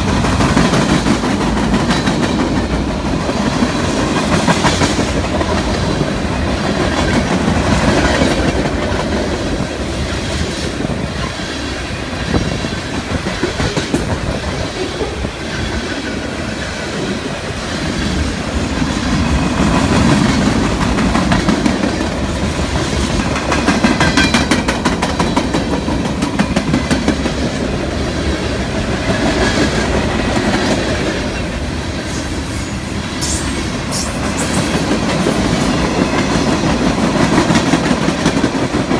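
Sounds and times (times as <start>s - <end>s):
train wheels clacking on rails: 0.0s - 38.9s.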